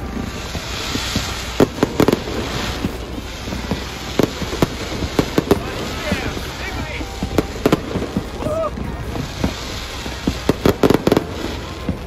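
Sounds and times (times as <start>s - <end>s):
fireworks bangs: 0.0s - 12.0s
fireworks crackling hiss: 0.0s - 12.0s.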